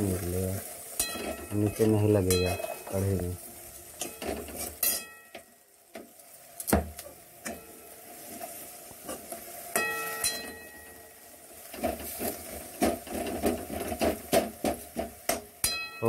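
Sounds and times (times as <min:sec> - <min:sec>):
ladle scraping and clinking on pan: 0:01.0 - 0:01.5, 0:04.0 - 0:05.2.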